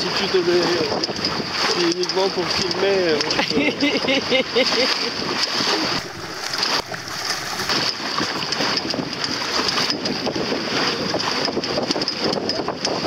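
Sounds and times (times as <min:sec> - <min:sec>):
water lapping against a hull: 0:00.1 - 0:13.0
wind on microphone: 0:05.2 - 0:13.0.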